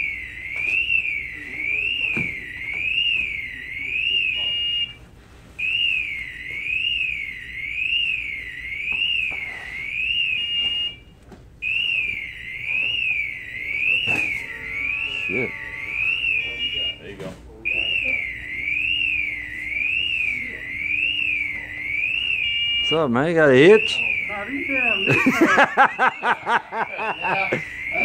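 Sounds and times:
electronic alarm warbling: 0:00.0 - 0:05.0, 0:05.6 - 0:28.0
steady beep: 0:11.6 - 0:28.0.

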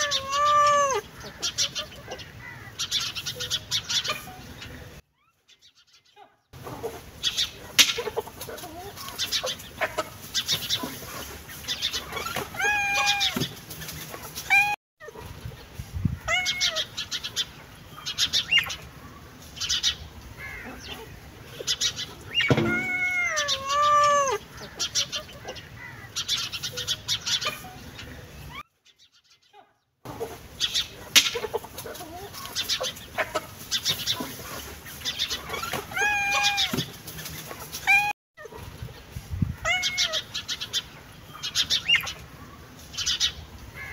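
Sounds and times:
animal cries rising and falling: 0:00.0 - 0:01.1, 0:12.0 - 0:13.5, 0:14.5 - 0:15.2, 0:16.2 - 0:16.9, 0:22.3 - 0:24.5, 0:35.4 - 0:36.8, 0:37.8 - 0:38.2, 0:39.6 - 0:40.3.

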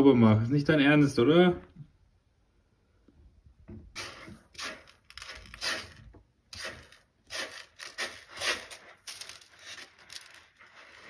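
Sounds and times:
kitten digging in cat litter: 0:03.9 - 0:11.0.

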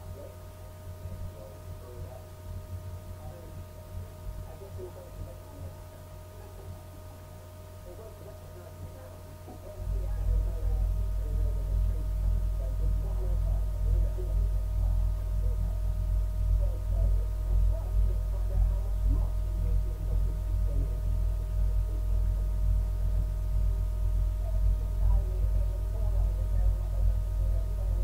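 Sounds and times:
low hum and rumble: 0:00.0 - 0:28.0.

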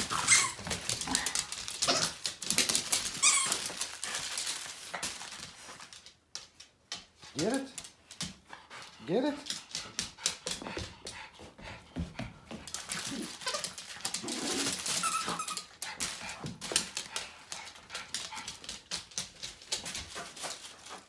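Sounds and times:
dog whining: 0:00.0 - 0:00.7, 0:13.1 - 0:15.7
dog claws clicking on hardwood floor: 0:00.0 - 0:11.3, 0:12.0 - 0:21.0.

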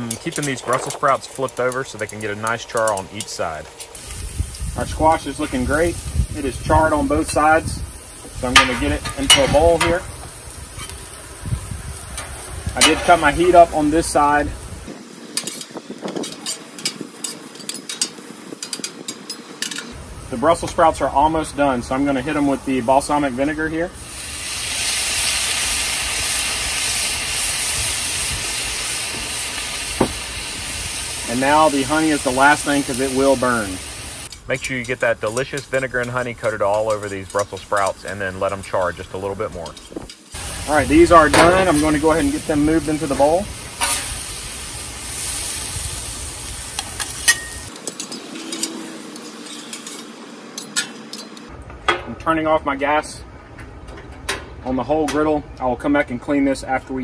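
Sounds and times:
vinegar sizzling on a hot griddle: 0:00.0 - 0:50.6
metal spatulas scraping steel: 0:08.4 - 0:10.0, 0:12.2 - 0:13.6, 0:15.4 - 0:20.0, 0:43.8 - 0:44.2, 0:47.2 - 0:51.5.

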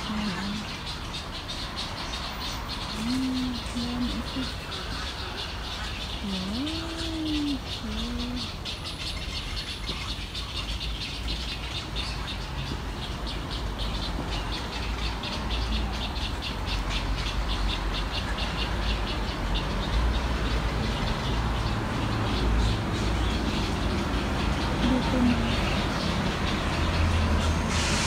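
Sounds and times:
birds rattling chatter: 0:00.0 - 0:28.0
low rising and falling bird call: 0:02.2 - 0:11.2.

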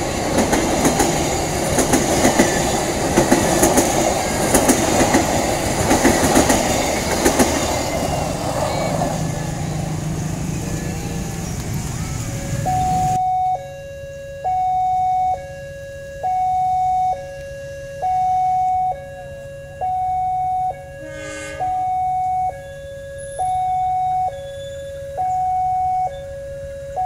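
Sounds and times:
level crossing two-tone alarm: 0:12.3 - 0:27.0
short horn blast: 0:20.7 - 0:23.9.

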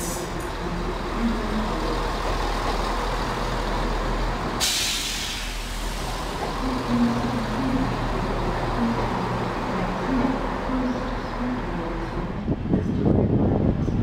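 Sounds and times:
diesel train engines droning: 0:00.0 - 0:14.0
sharp hiss of released air: 0:04.6 - 0:06.0.

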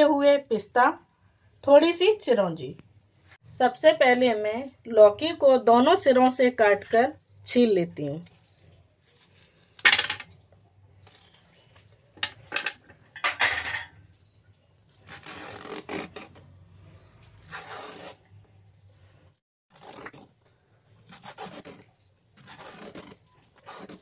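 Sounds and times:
peeler scraping gourd skin: 0:15.0 - 0:16.5, 0:19.7 - 0:20.3, 0:21.0 - 0:24.0.

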